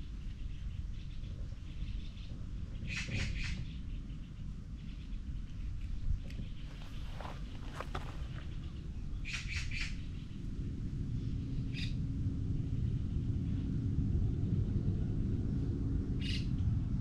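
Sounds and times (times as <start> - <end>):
small bird chirping: 0.2 - 10.4
low rumble: 3.6 - 17.0.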